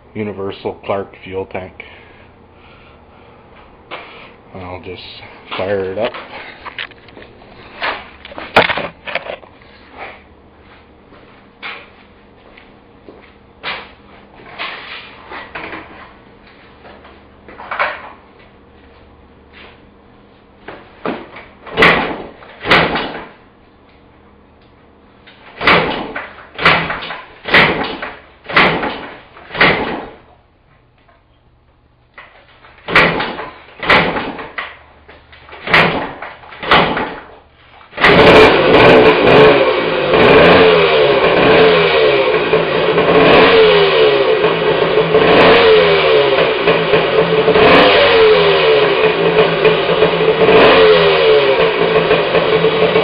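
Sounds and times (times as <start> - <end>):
motorcycle kick-start kicks: 7.8 - 10.2, 13.6 - 18.2, 20.6 - 23.4, 25.2 - 30.3, 32.2 - 53.0
motorcycle engine running loudly: 38.0 - 53.0.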